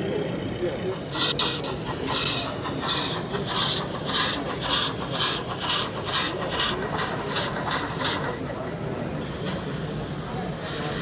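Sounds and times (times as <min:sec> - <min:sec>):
model steam locomotive chuffing: 0:00.0 - 0:11.0.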